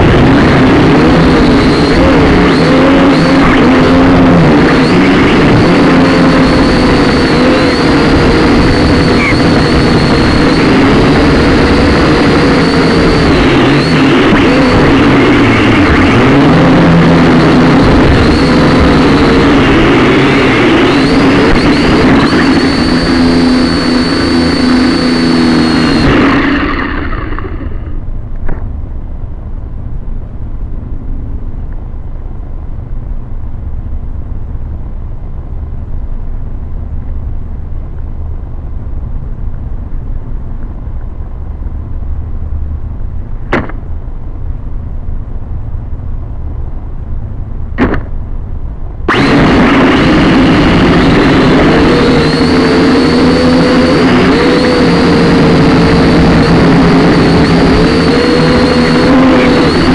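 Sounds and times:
quadcopter motors whining: 0.0s - 28.1s, 49.1s - 59.9s
low wind rumble on microphone: 0.0s - 59.9s.

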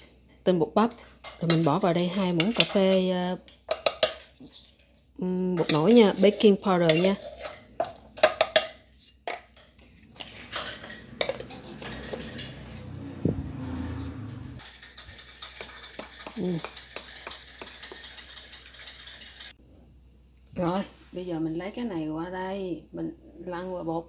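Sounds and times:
spoon scraping powder in metal bowl: 0.9s - 4.9s, 5.5s - 13.0s, 14.6s - 19.6s.

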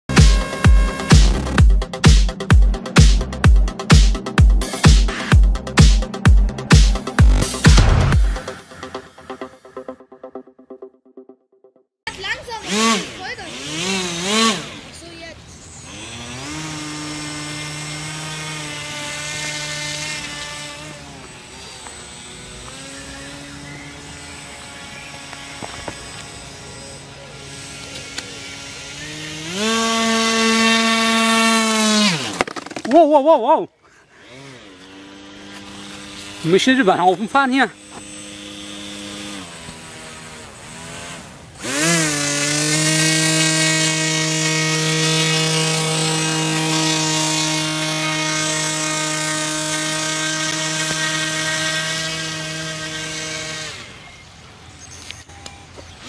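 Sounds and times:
model airboat motor buzzing: 0.1s - 1.6s, 12.1s - 32.8s, 34.0s - 54.5s.

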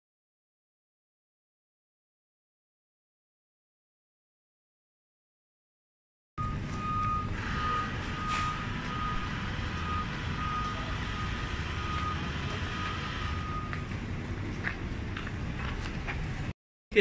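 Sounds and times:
reversing alarm beeping: 6.4s - 14.0s
street traffic rumble: 6.4s - 17.0s.

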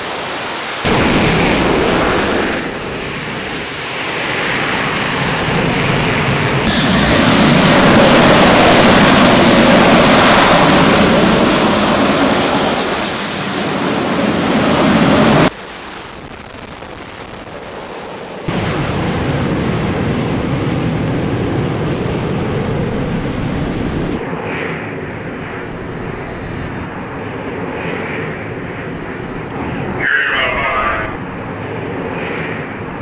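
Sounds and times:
jet engine roar: 0.0s - 33.0s.

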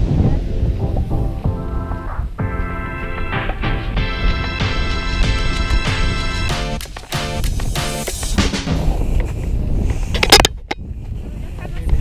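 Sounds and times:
background music chords: 0.0s - 9.1s
steady rushing noise: 0.0s - 12.0s.

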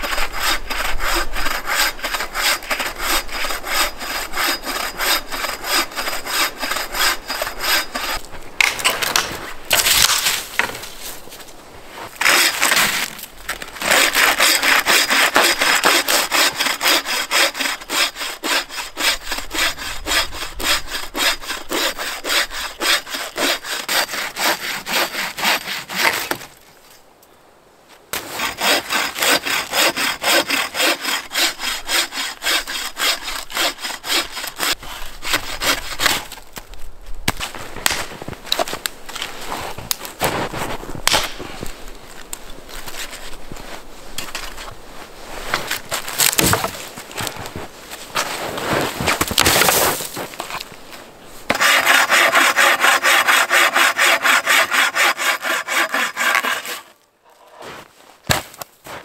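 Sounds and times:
saw cutting through log: 0.0s - 8.2s, 12.2s - 12.8s, 13.8s - 26.4s, 28.2s - 36.2s, 51.5s - 57.0s.

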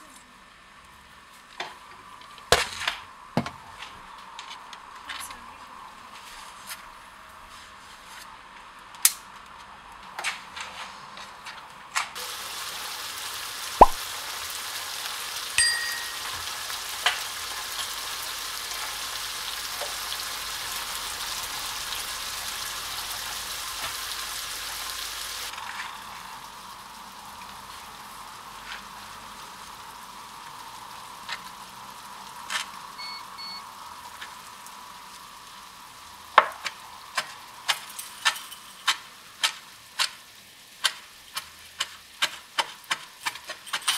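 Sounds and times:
curry sizzling in a pan: 12.2s - 43.9s
knife chopping herbs on board: 40.8s - 43.7s.

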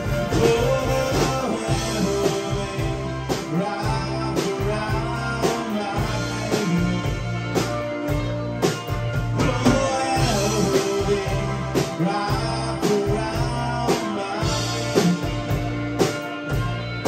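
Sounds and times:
bass guitar line: 0.0s - 17.0s
drum kit strikes: 0.0s - 17.0s
electric guitar: 0.0s - 17.0s.

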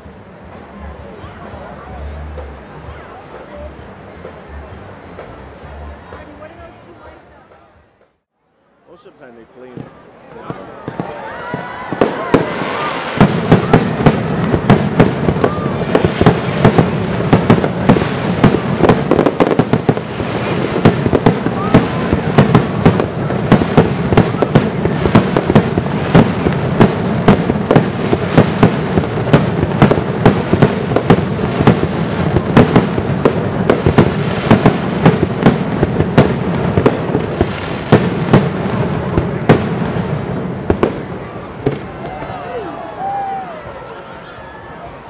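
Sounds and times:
fireworks bursting: 0.0s - 8.3s, 9.6s - 43.6s.

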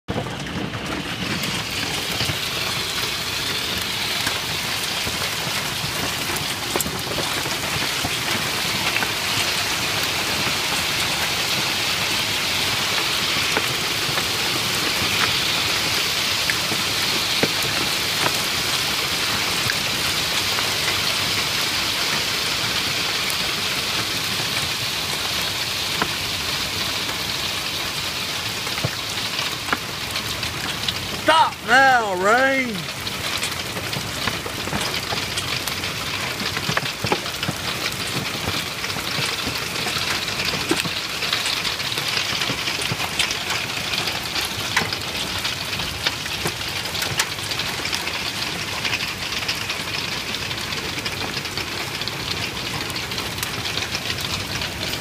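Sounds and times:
hail and rain pelting down: 0.1s - 55.0s
hailstones ticking: 0.1s - 55.0s.

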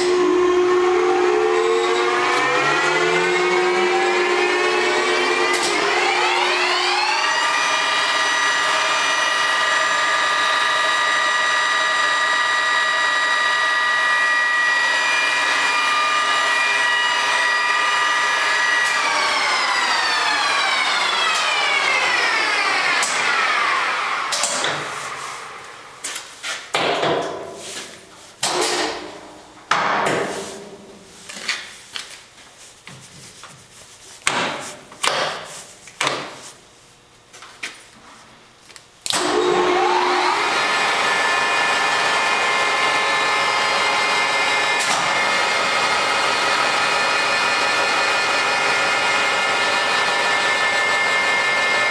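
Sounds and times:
lathe gear whine: 0.0s - 25.7s, 39.2s - 51.9s.

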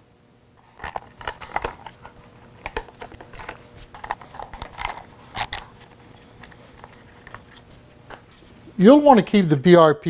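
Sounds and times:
small metal parts clinking: 0.8s - 5.7s.

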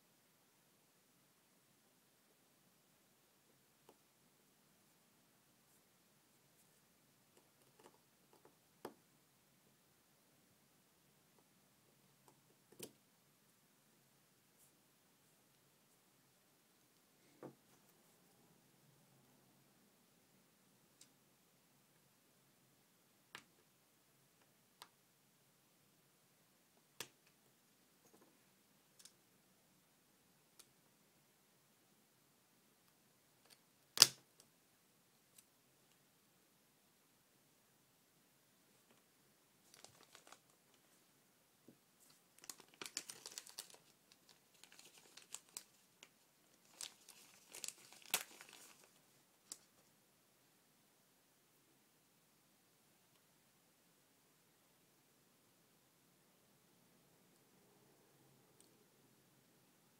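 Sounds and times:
plastic bag crinkling: 39.7s - 40.6s, 42.4s - 45.9s, 46.6s - 49.7s.

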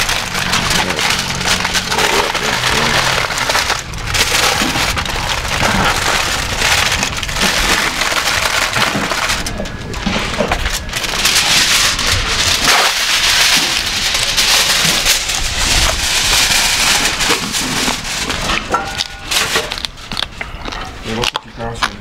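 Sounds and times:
crispy skin breaking: 0.0s - 9.6s, 10.5s - 16.4s
foil crinkling: 0.0s - 22.0s.

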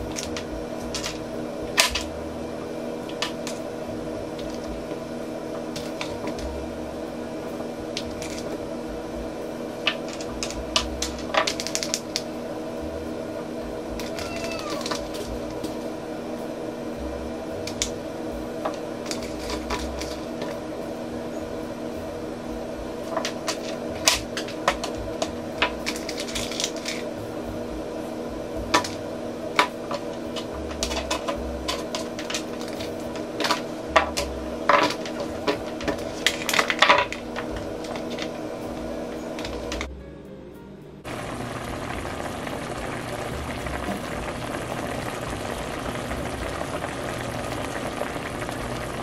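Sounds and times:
steady low hum: 0.0s - 49.0s
kitchen utensils and dishes clinking: 29.6s - 38.4s.

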